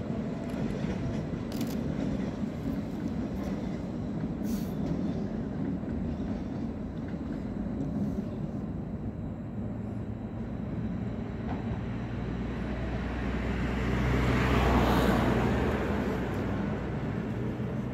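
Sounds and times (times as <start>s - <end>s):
traffic and rail yard rumble: 0.0s - 17.9s
vehicle passing close by: 13.1s - 17.5s.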